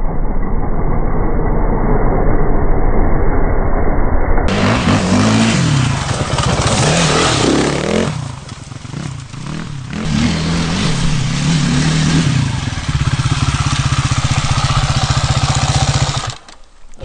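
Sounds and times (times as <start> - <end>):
dirt bike engine revving: 4.5 - 16.6.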